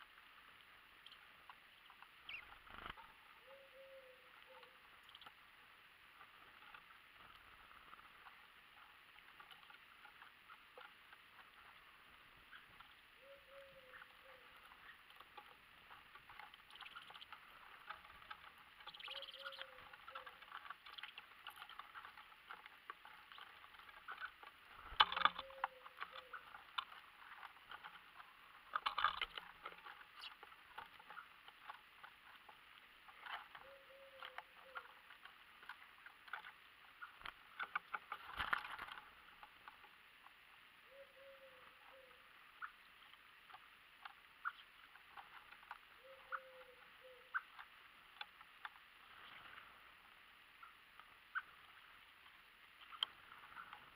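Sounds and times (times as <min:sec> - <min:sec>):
wings fluttering: 0:00.0 - 0:05.5, 0:06.1 - 0:40.4, 0:41.2 - 0:53.9
birds pecking on wooden tray: 0:00.2 - 0:03.3, 0:06.1 - 0:40.5, 0:42.4 - 0:53.9.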